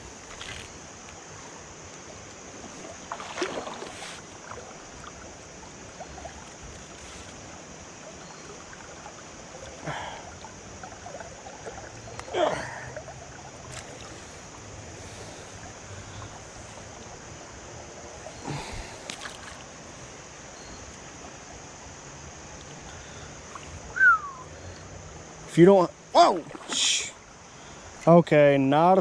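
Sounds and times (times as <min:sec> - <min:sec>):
creek current running: 0:00.0 - 0:29.0
fish splashing: 0:02.6 - 0:16.4, 0:26.2 - 0:27.1.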